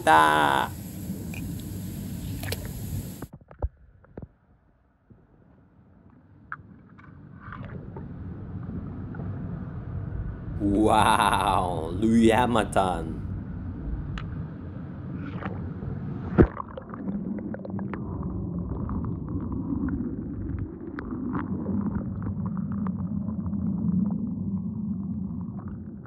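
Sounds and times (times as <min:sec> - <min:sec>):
underwater bubbling rumble: 0:13.3 - 0:26.0
bubbles crackling: 0:16.4 - 0:26.0.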